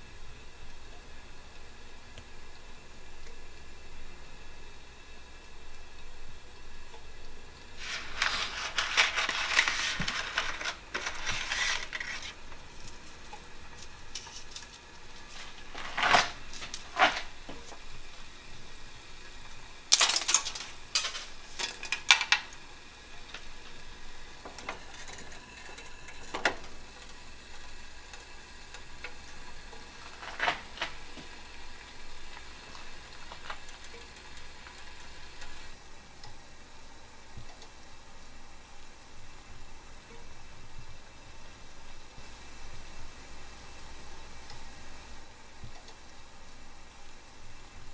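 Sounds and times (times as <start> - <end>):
dry spaghetti clattering into a pan: 7.8 - 17.8, 19.9 - 22.6, 29.8 - 35.5.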